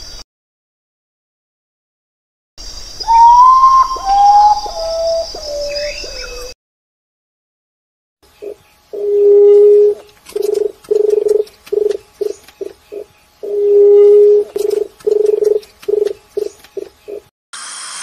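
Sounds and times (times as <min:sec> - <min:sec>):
dove cooing: 0:03.1 - 0:06.5, 0:08.4 - 0:17.3.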